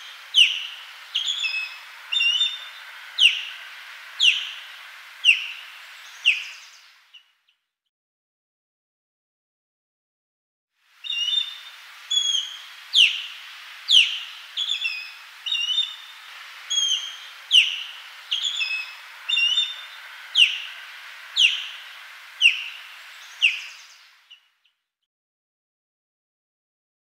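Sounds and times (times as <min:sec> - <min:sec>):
osprey calling: 0:00.0 - 0:07.3, 0:11.0 - 0:24.5
faint steady hiss: 0:00.0 - 0:07.5, 0:10.8 - 0:24.7.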